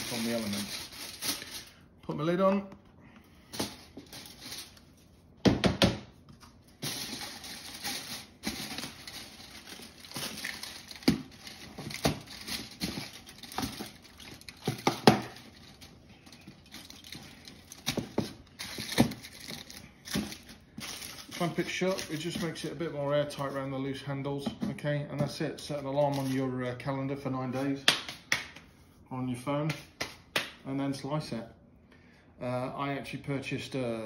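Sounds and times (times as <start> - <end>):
rubbing and handling noise: 0.0 - 5.4, 6.1 - 26.8.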